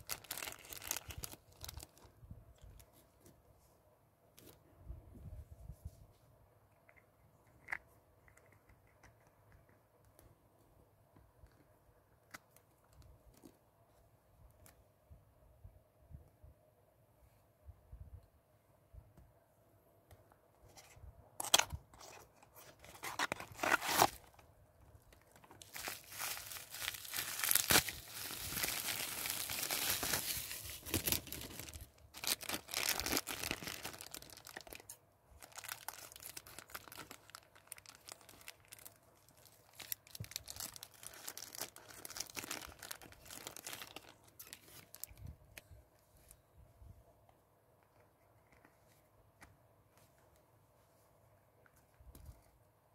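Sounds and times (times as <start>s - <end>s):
plastic bag tearing and crinkling: 0.0s - 2.0s, 23.0s - 24.4s, 25.6s - 45.2s
cardboard box opening: 21.5s - 24.4s.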